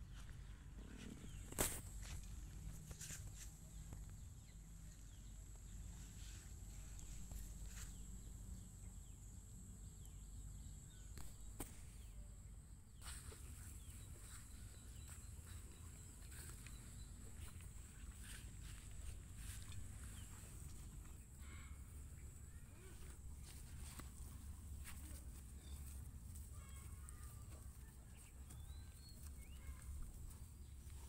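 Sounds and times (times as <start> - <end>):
soft ticks and rustles: 23.0 - 31.0.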